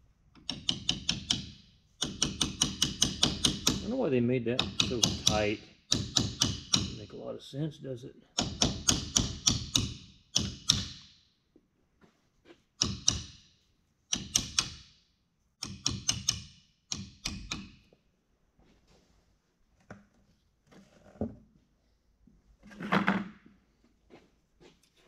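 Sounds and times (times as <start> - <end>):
ratchet wrench clicking: 0.5 - 3.8, 15.6 - 17.8.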